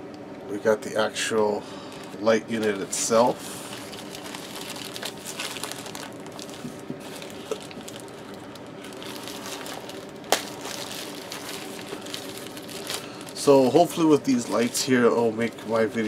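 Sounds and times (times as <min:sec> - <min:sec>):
plastic wrapping crinkling: 0:01.9 - 0:16.0.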